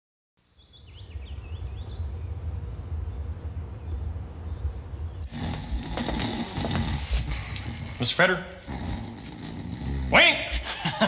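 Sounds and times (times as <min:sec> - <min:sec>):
birds chirping: 0:00.5 - 0:11.0
low steady rumble: 0:00.9 - 0:09.0
high bird trill: 0:03.7 - 0:05.6.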